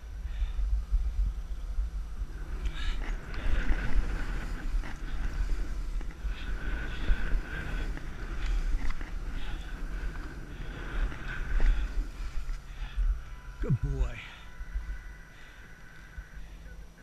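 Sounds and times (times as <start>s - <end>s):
wind buffeting microphone: 0.0s - 17.0s
skis hissing through snow: 1.0s - 13.0s.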